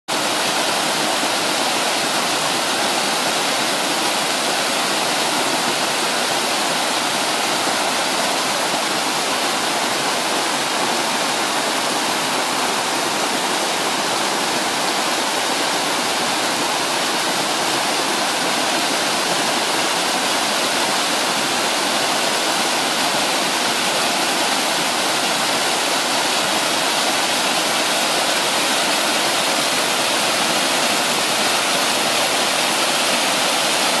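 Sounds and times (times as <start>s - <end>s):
water rushing over rocks: 0.1s - 34.0s.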